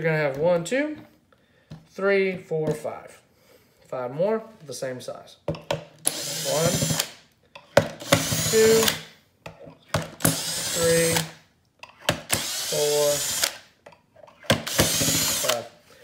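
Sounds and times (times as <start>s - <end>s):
cordless drill whirring: 6.0s - 7.2s, 8.0s - 9.1s, 10.2s - 11.4s, 12.2s - 13.6s, 14.5s - 15.7s.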